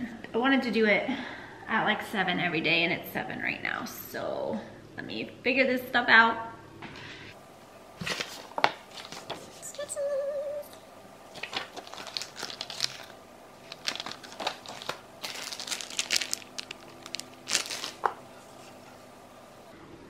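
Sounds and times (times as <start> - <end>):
paper and plastic crinkling: 8.0 - 9.8, 11.3 - 19.1.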